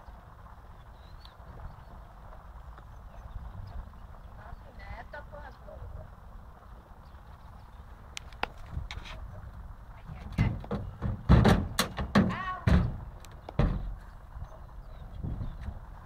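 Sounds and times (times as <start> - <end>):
heavy thuds on a horse trailer: 10.0 - 14.1.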